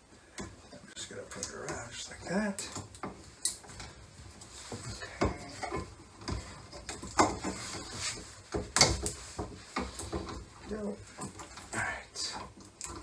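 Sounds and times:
light clicks and knocks: 0.2 - 13.0.

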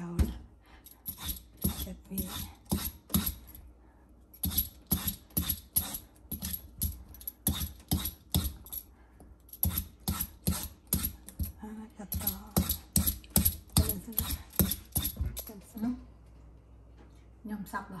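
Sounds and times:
peeler scraping papaya skin: 1.1 - 3.4.

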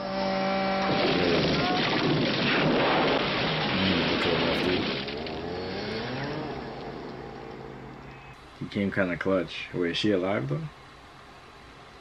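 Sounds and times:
loud rushing rumbling noise: 0.7 - 8.3.

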